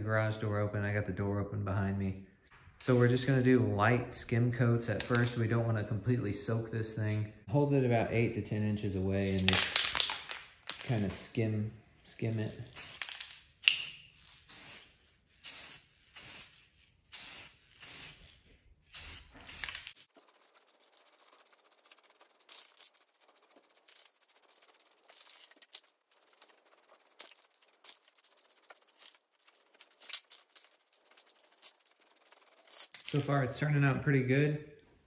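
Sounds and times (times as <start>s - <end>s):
spray paint can hissing: 12.7s - 33.0s.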